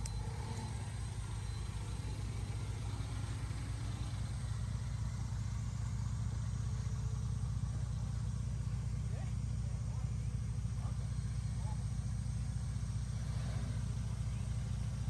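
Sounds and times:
car engine low rumble: 0:00.0 - 0:15.0.

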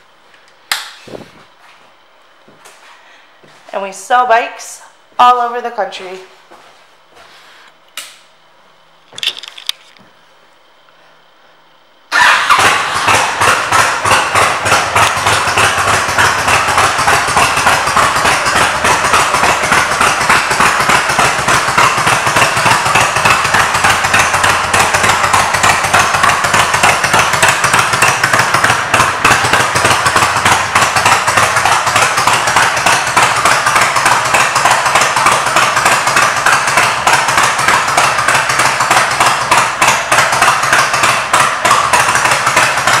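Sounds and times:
motorcycle engine pulsing exhaust: 0:12.1 - 0:43.0.

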